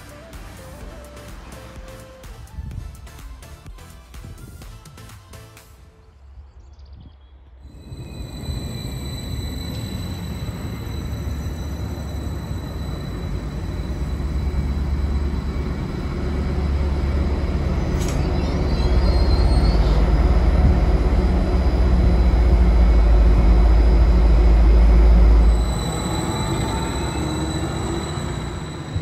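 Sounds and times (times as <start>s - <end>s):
high squeal: 7.6s - 29.0s
train diesel engine rumbling: 7.7s - 29.0s.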